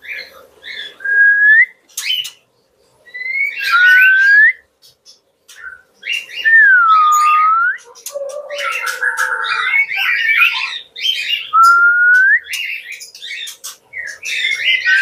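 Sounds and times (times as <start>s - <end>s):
bird chirps and clicks: 1.9s - 2.5s, 7.2s - 10.6s, 11.5s - 14.6s
bird singing whistled notes: 3.1s - 4.6s, 5.5s - 15.0s
bird twittering: 3.1s - 15.0s.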